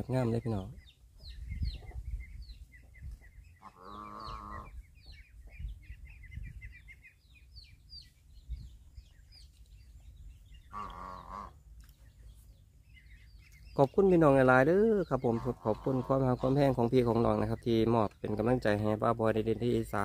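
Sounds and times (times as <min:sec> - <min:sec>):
birds chirping: 0:00.0 - 0:20.0
drawn-out animal call: 0:03.6 - 0:05.0, 0:10.6 - 0:11.7, 0:15.1 - 0:16.6.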